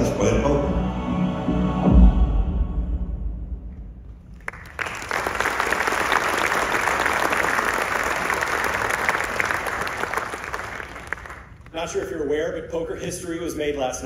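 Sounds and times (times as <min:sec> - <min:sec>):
crowd applauding: 0:04.3 - 0:11.7.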